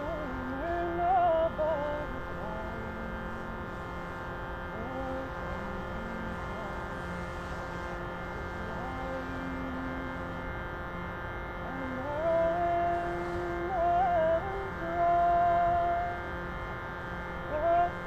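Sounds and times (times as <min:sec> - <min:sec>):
woman singing long held notes: 0:00.0 - 0:03.7, 0:04.7 - 0:06.9, 0:08.4 - 0:10.3, 0:11.6 - 0:16.4, 0:17.4 - 0:18.0
steady drone: 0:00.0 - 0:18.0.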